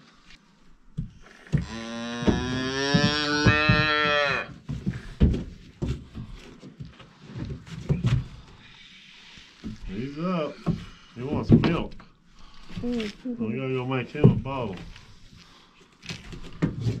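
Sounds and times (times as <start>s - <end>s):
knocks and thumps: 0.9s - 8.6s, 10.6s - 12.1s, 14.2s - 14.9s.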